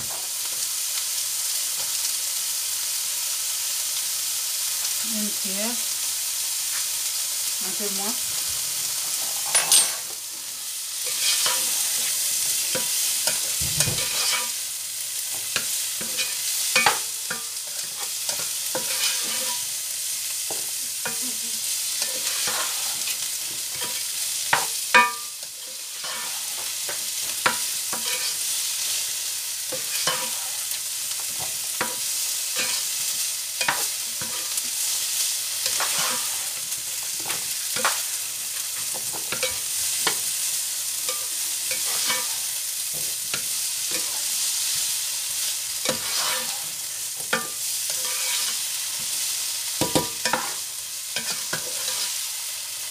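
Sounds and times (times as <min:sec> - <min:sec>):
vegetables sizzling in oil: 0:00.0 - 0:52.9
spatula scraping a pan: 0:08.9 - 0:10.2, 0:11.0 - 0:14.6, 0:15.3 - 0:19.8, 0:21.8 - 0:52.6.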